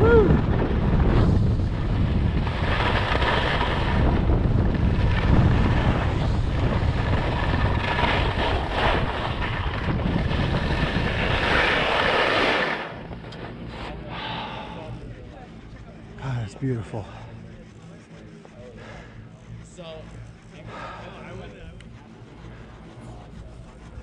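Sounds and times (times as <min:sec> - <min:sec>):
wind buffeting microphone: 0:00.0 - 0:13.2
skis hissing over snow: 0:02.0 - 0:04.3, 0:04.9 - 0:13.0.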